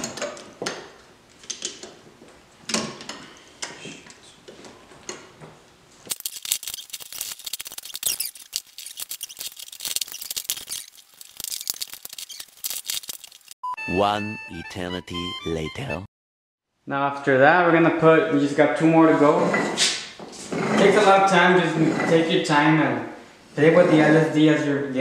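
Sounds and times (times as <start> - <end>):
steel gears clinking and rattling: 6.1 - 13.6.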